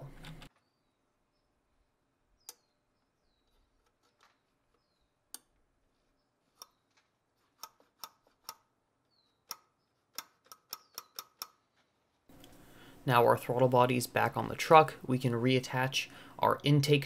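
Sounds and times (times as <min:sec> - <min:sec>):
metallic clicks of throttle cable: 0:07.6 - 0:08.7, 0:09.4 - 0:12.6.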